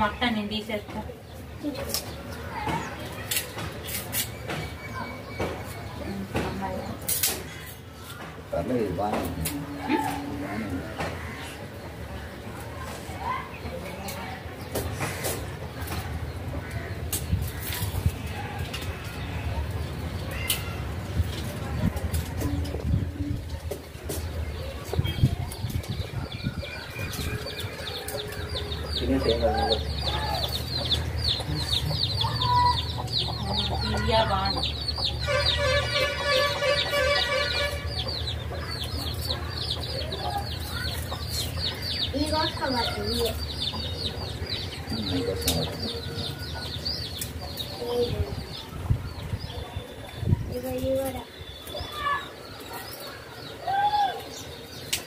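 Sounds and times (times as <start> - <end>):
small birds chirping: 0.0 - 55.0
hen clucks: 26.5 - 35.6.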